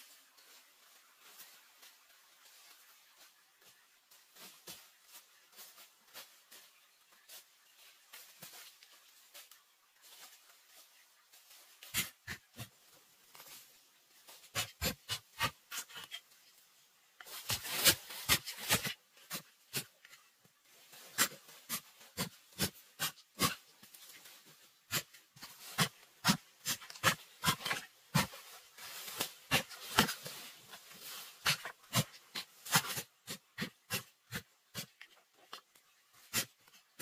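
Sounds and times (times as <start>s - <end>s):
digging stick striking dry soil: 11.8s - 12.8s, 14.3s - 16.2s, 17.2s - 20.3s, 21.0s - 24.0s, 24.8s - 37.0s.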